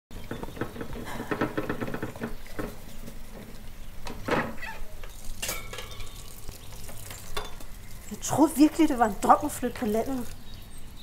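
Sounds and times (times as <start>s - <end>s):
tap running: 0.1s - 7.8s.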